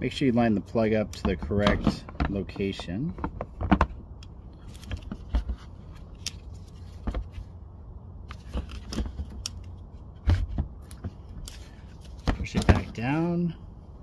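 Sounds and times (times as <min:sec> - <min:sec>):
low background rumble: 0:00.0 - 0:14.0
plastic clicks and knocks: 0:01.1 - 0:04.3.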